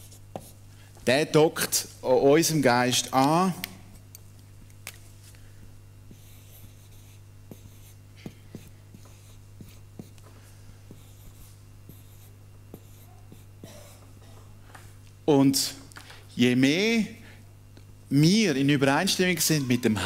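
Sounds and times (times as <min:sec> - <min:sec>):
marker pen scratching on board: 0:00.0 - 0:00.6, 0:06.1 - 0:10.2, 0:10.9 - 0:13.6
low electrical hum: 0:00.0 - 0:20.0.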